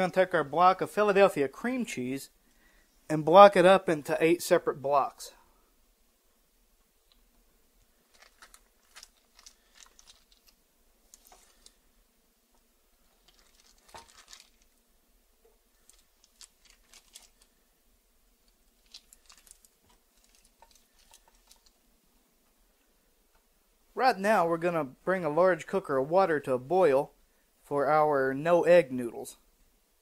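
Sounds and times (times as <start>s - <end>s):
knife slicing on foil: 13.3s - 14.7s.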